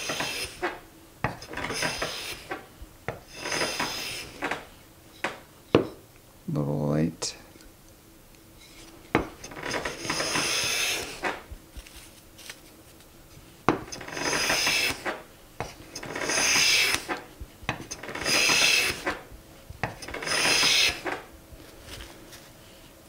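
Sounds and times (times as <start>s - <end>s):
hand plane rasping on wood: 0.0s - 0.8s, 1.6s - 2.6s, 3.3s - 4.6s, 9.9s - 11.3s, 14.0s - 15.0s, 15.6s - 17.2s, 17.9s - 19.2s, 19.9s - 21.2s
plane knocking down on wood: 13.7s - 19.2s, 19.8s - 21.2s.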